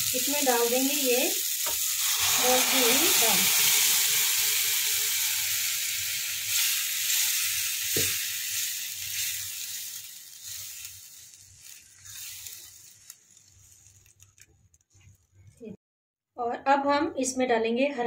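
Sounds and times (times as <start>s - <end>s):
food sizzling in pan: 0.0s - 14.5s
wooden spatula stirring: 6.5s - 15.2s.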